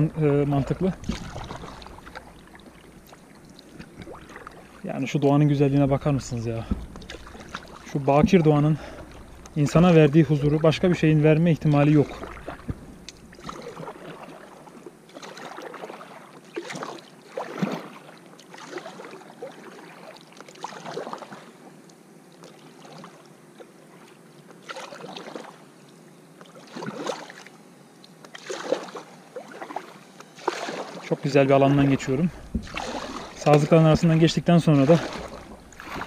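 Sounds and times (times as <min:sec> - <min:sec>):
kayak paddle splashing water: 0:00.0 - 0:21.7, 0:22.4 - 0:25.7, 0:26.4 - 0:36.0.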